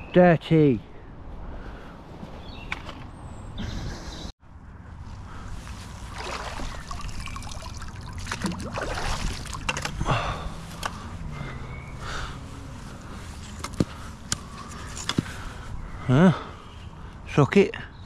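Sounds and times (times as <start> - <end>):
water trickling and dripping: 6.2 - 9.8.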